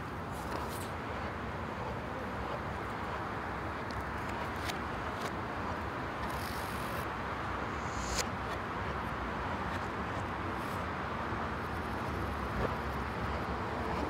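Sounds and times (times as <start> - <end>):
steady rushing noise: 0.0 - 14.0
brief hiss: 7.6 - 8.3.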